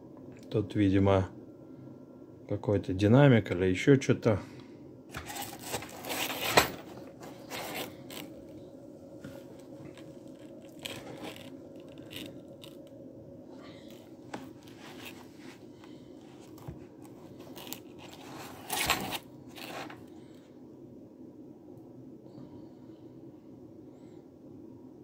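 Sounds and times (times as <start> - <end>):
handling scrapes and rustles: 5.1 - 8.4, 9.2 - 12.9, 13.7 - 20.1.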